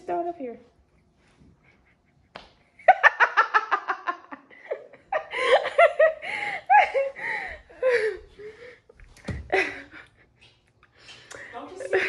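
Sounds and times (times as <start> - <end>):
woman laughing: 2.8 - 8.3, 9.3 - 10.4, 11.7 - 12.0.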